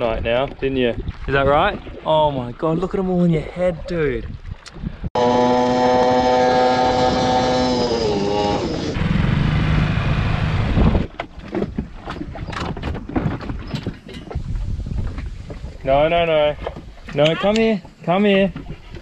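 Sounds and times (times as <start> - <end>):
water noise: 0.0 - 19.0
outboard motor running: 5.2 - 13.6
dog jumping knocks and thumps: 10.9 - 14.4.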